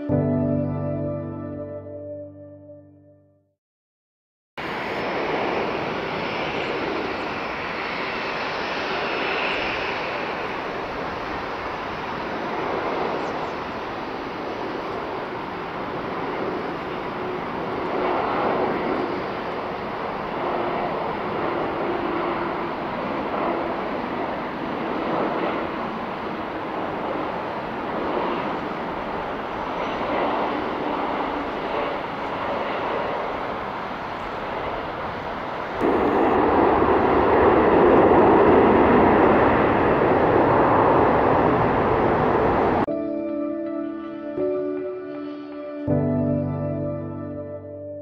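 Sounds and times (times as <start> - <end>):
jet engine roar: 4.6 - 43.0.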